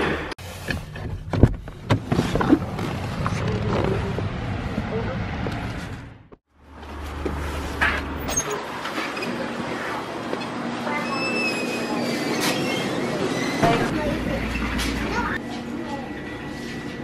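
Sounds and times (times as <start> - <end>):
outdoor noise rushing: 1.7 - 10.8.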